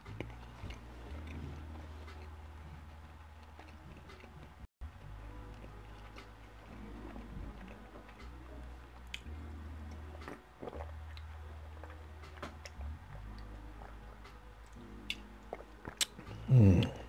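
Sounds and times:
wet mouth clicks: 0:15.0 - 0:17.0.

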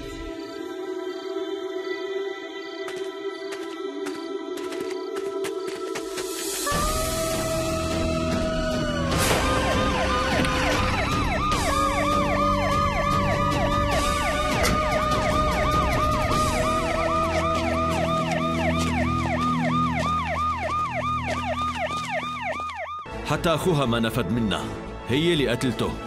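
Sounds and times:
police siren yelping: 0:06.7 - 0:23.1.

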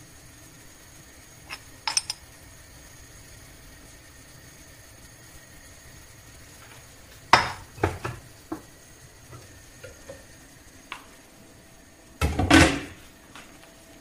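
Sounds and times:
cookware clinking: 0:01.5 - 0:02.2, 0:07.3 - 0:08.1.

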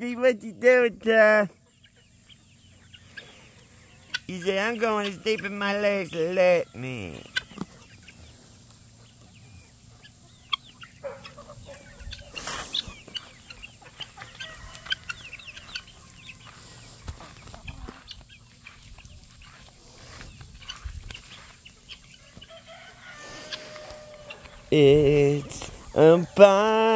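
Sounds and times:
chickens clucking: 0:00.0 - 0:26.9
rustle: 0:06.7 - 0:26.2.

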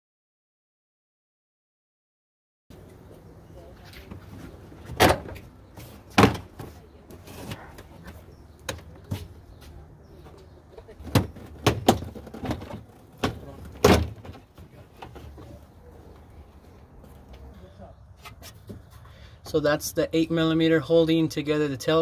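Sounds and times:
panels banging against car body: 0:04.8 - 0:06.8, 0:11.0 - 0:15.3.

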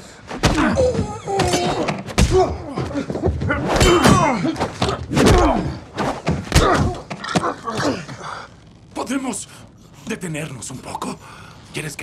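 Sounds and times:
fight blows and thuds: 0:00.3 - 0:07.2
men grunting: 0:00.4 - 0:05.9, 0:06.5 - 0:08.4.

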